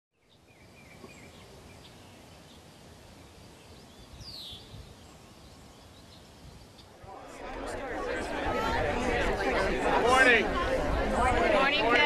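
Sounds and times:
birds chirping: 0.2s - 8.5s.

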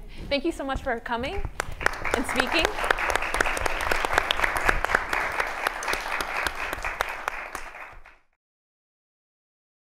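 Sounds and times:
audience applauding: 1.6s - 8.3s.

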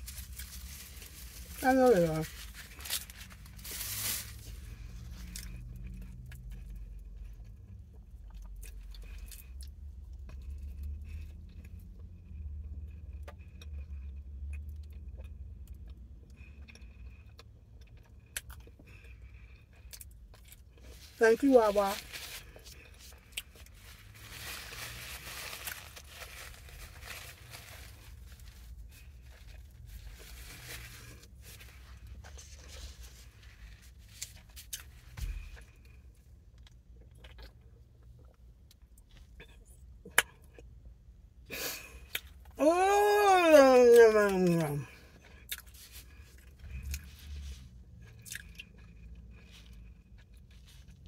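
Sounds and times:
bagel tearing rustle: 0.0s - 5.5s, 22.0s - 35.0s
low hum inside a car: 0.0s - 51.0s
chewing and mouth sounds: 12.9s - 21.1s, 36.3s - 40.8s, 44.4s - 47.1s, 47.9s - 51.0s
paper napkin crinkling: 23.7s - 34.6s.

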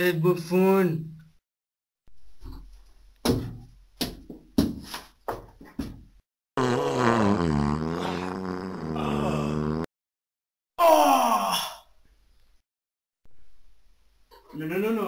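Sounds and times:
long wavering fart sound: 6.6s - 9.9s.

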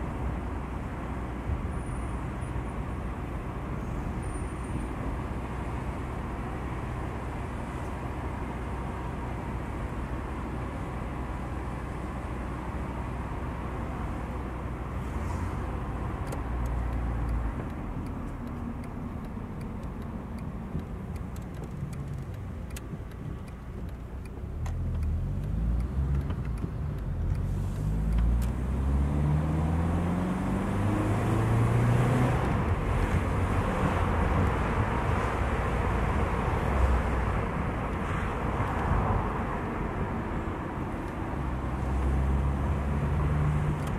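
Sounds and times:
road noise inside car: 0.0s - 43.9s
car engine accelerating: 15.0s - 36.0s.

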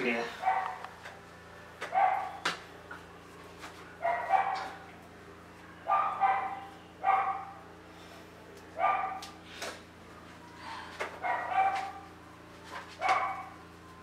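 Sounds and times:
dog barking: 0.4s - 0.9s, 1.9s - 2.4s, 4.0s - 4.8s, 5.8s - 7.6s, 8.8s - 9.3s, 11.2s - 12.0s, 13.0s - 13.5s.

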